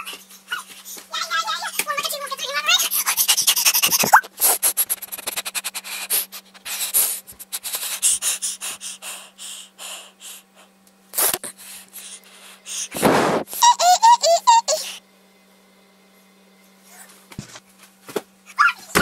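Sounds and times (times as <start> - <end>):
boy's high-pitched squeaky chirps: 18.5 - 19.0.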